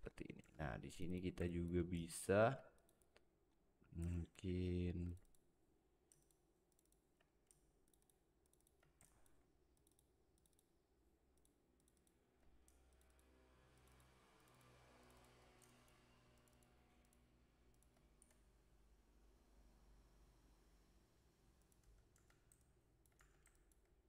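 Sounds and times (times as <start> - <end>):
faint computer mouse clicks: 11.4 - 18.4.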